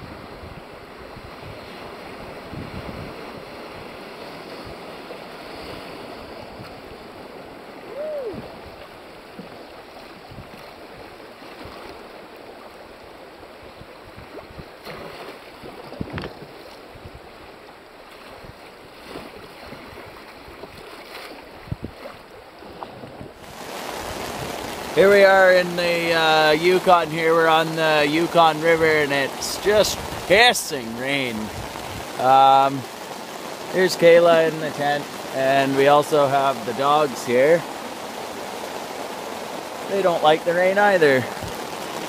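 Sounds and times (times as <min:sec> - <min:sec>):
wind over microphone: 0:00.0 - 0:09.5, 0:10.2 - 0:11.9, 0:13.6 - 0:17.5, 0:18.2 - 0:25.3, 0:28.6 - 0:32.7, 0:41.2 - 0:42.0
river water rushing: 0:00.0 - 0:42.0.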